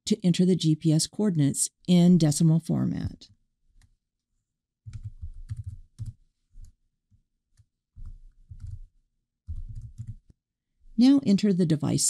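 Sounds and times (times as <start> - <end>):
typing on computer keyboard: 4.9 - 6.8, 7.6 - 8.9, 9.5 - 10.3.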